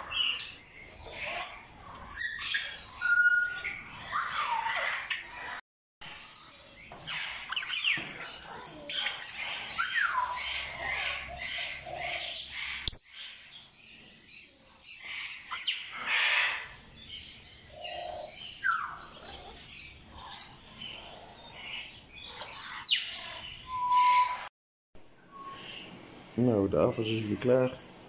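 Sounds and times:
parrots chirping and squawking: 0.0 - 24.5
parrot whistles gliding downward: 23.7 - 24.5.

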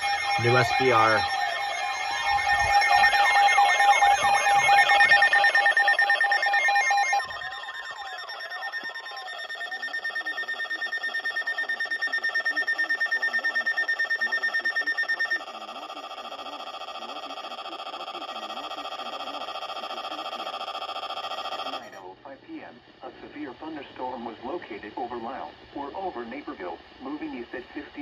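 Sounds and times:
rapid pulsing beep: 0.0 - 22.0
weather radio alarm tones: 0.0 - 22.0.

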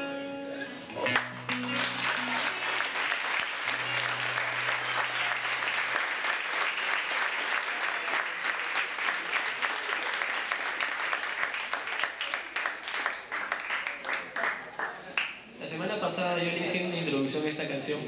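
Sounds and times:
audience applauding: 1.0 - 15.4.

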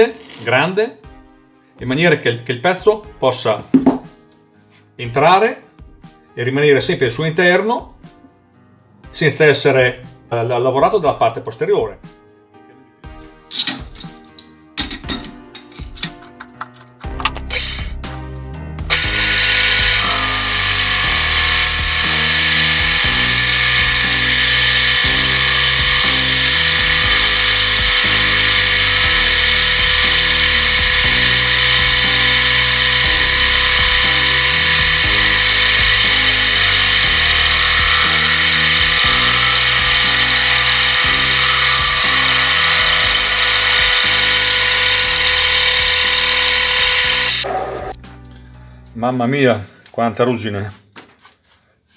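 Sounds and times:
background music with steady beat: 0.6 - 51.9
cutting tool scraping steel: 17.5 - 18.0, 18.9 - 48.0
lathe spindle running: 18.9 - 47.9.

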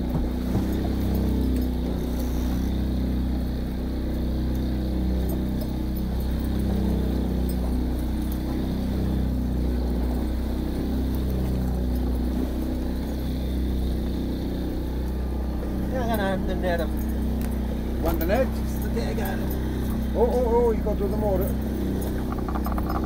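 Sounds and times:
boat engine running: 0.0 - 23.0
wind: 0.0 - 23.0
water noise: 5.0 - 23.0.

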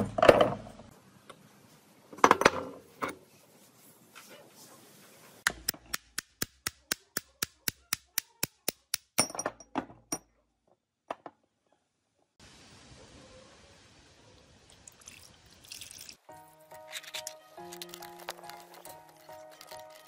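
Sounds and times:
hammer tapping metal shaft: 5.4 - 9.4.

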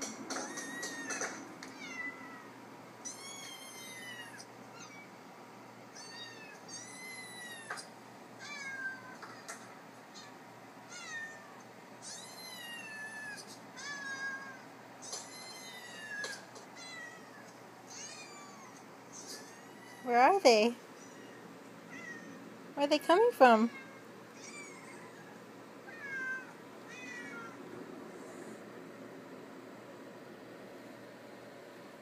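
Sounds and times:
cats and kittens meowing: 0.0 - 5.2, 5.8 - 20.1, 20.8 - 22.5, 23.6 - 27.7.

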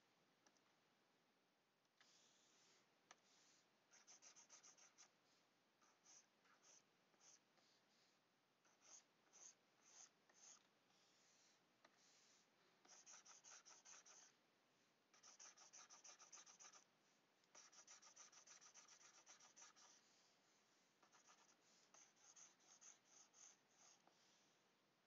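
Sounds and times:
stylus scratching on tablet: 2.0 - 5.2, 5.8 - 14.4, 15.1 - 16.9, 17.5 - 20.4, 21.0 - 24.5.

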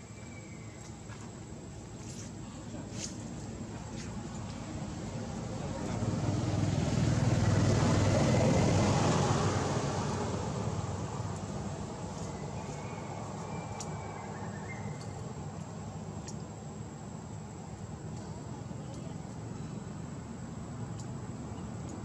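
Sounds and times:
low steady background noise: 0.0 - 22.0
vehicle passing by: 3.9 - 14.8.

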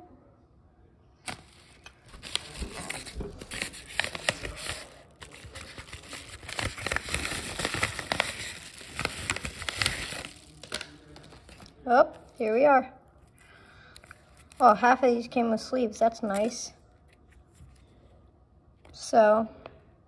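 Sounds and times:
paper envelope crinkling: 1.3 - 14.9.

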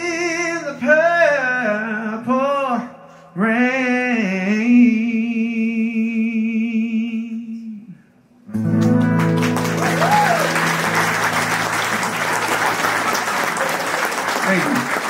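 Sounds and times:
man singing wordless vocal: 0.0 - 8.0.

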